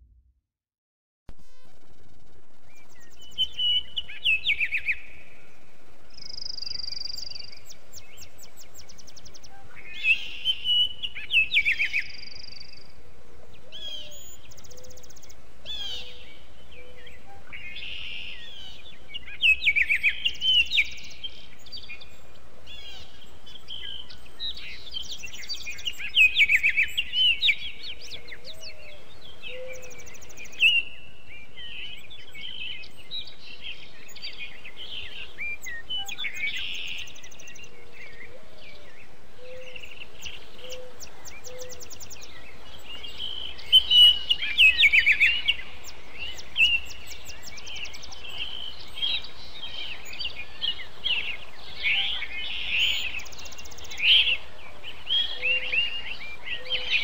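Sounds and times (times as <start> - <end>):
faint low notes: 0.0 - 0.5
faint hiss: 1.3 - 57.0
songbirds chirping: 1.4 - 57.0.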